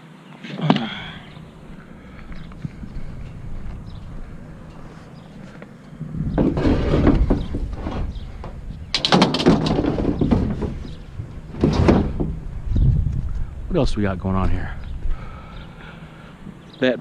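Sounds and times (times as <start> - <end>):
steady low rumble: 1.0 - 16.7
objects knocking and clattering: 6.3 - 12.4.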